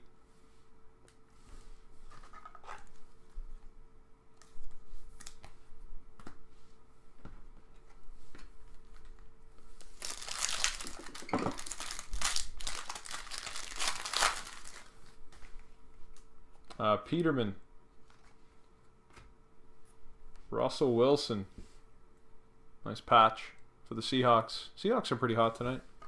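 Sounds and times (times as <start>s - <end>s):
card pack wrapper crinkling and tearing: 9.8s - 15.0s.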